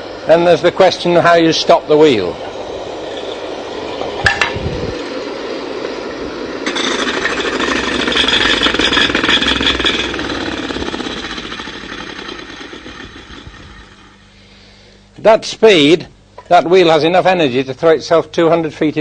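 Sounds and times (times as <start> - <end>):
gyroscope wheel rattling: 6.7 - 14.2.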